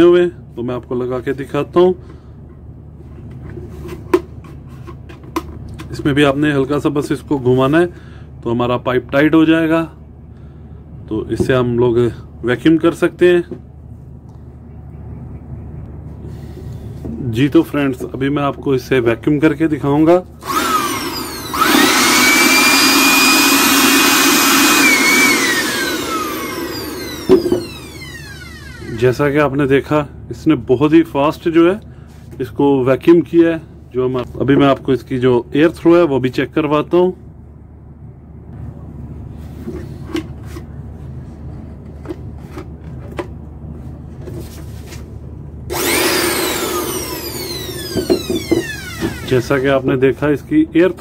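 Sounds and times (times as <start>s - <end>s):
electric blower whining: 20.4s - 29.0s, 45.7s - 49.7s.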